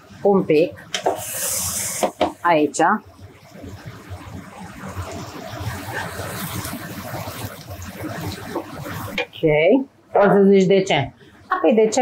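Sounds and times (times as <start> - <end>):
vegetables sizzling in a pan: 0.5 - 2.9, 5.1 - 9.5.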